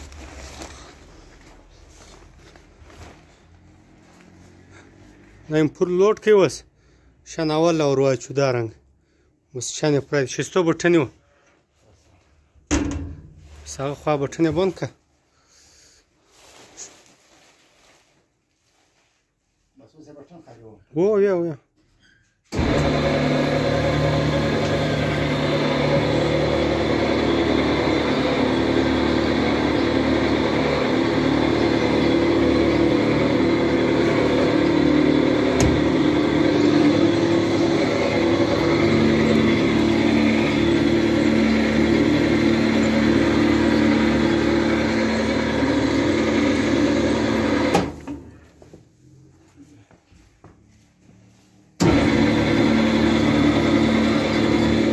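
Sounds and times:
feed mixer machine humming: 22.6 - 48.1, 51.8 - 54.9.

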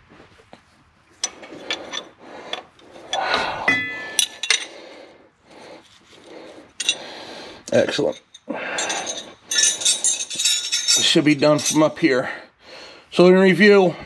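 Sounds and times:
metal tools clinking and scraping: 1.2 - 4.8, 5.8 - 12.2
metallic ring: 3.0 - 4.7, 7.8 - 12.0.

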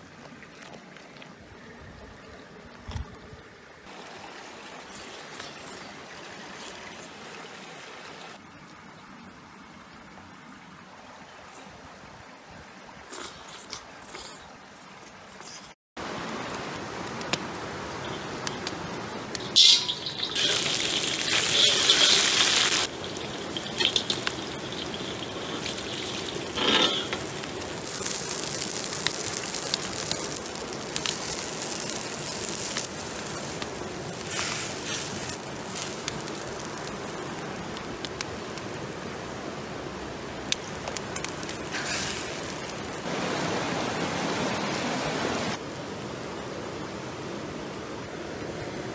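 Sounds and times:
water trickling: 19.0 - 38.6, 40.3 - 43.1
loud sizzling in a wok: 19.4 - 36.9, 41.6 - 43.0
liquid poured into hot pan: 19.5 - 36.9.

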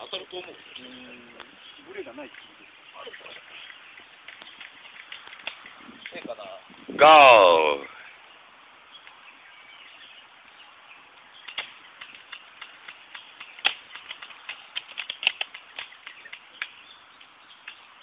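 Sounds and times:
airsoft rifle clicks and snaps: 11.4 - 16.8.

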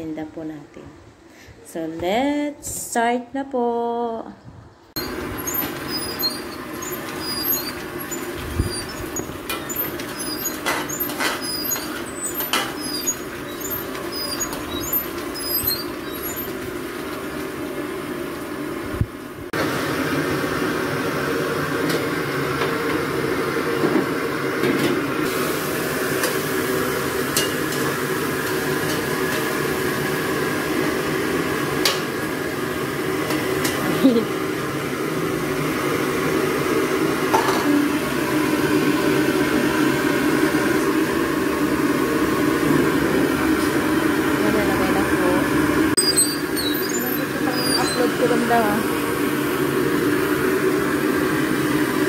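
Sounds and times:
metal ladle scraping a wok: 5.0 - 16.6, 46.0 - 48.2
vegetables sizzling: 5.0 - 19.5, 41.8 - 51.6.

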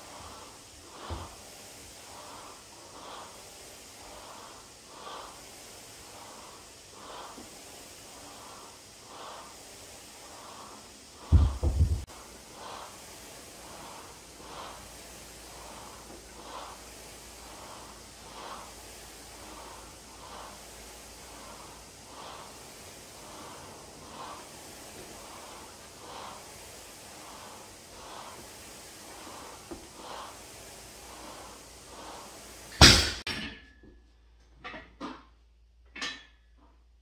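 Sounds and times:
woman breathing heavily: 0.0 - 32.8.

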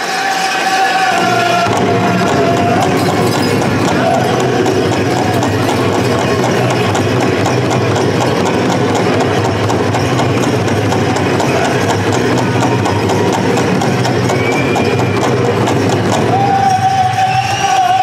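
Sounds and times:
crowd hubbub: 0.0 - 18.0
faint voices: 0.0 - 18.0
even drumbeat: 0.9 - 18.0.

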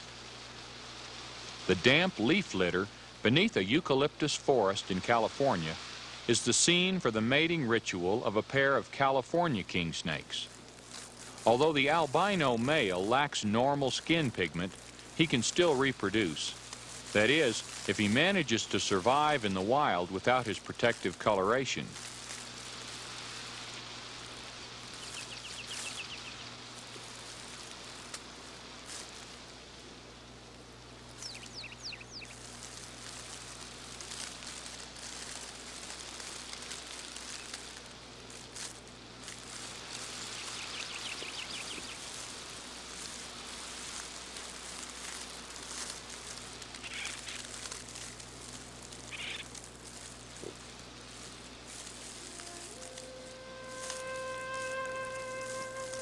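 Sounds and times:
outdoor nature hiss: 0.0 - 56.0
bird chirping trill: 31.2 - 32.4, 40.4 - 42.0
low hum: 47.4 - 56.0.

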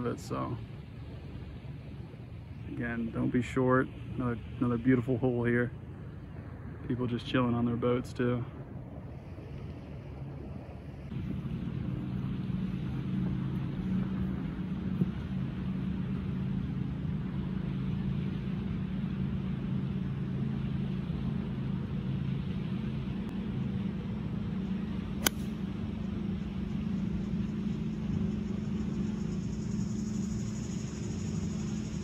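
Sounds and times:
low engine hum: 0.0 - 32.0
golf club striking ball: 25.1 - 25.7.

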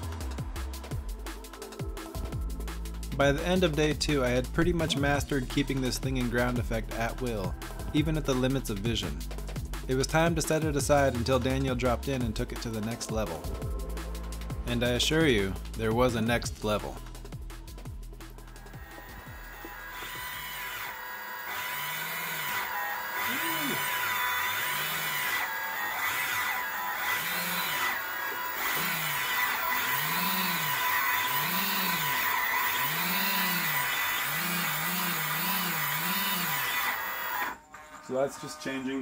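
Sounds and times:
small electric motors whining: 18.5 - 37.6.

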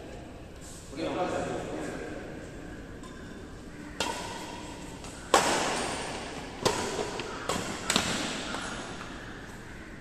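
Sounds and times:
racket hitting shuttlecock: 4.0 - 9.2.

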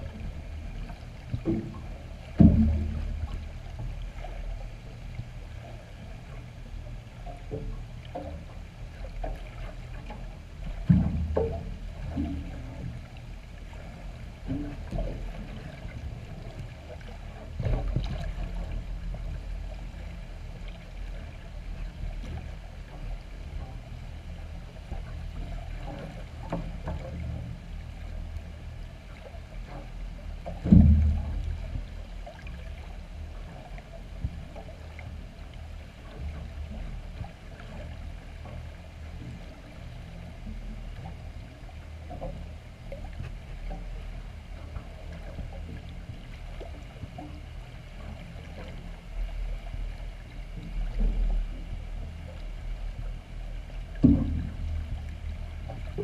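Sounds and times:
underwater rumble of moving water: 0.0 - 56.0
dull knocks: 2.4 - 3.4.

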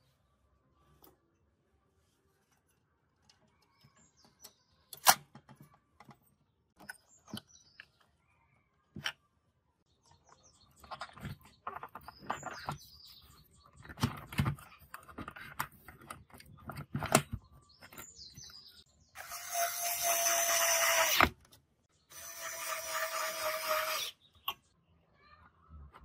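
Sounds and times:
clicks and knocks of handling parts: 2.5 - 8.1, 13.7 - 18.5
cordless screwdriver whining: 19.2 - 21.3, 22.1 - 24.2.

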